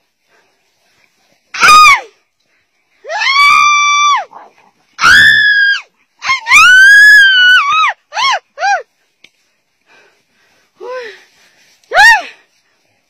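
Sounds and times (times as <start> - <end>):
shrill screaming cries: 1.6 - 2.1, 3.0 - 4.3, 5.0 - 8.8.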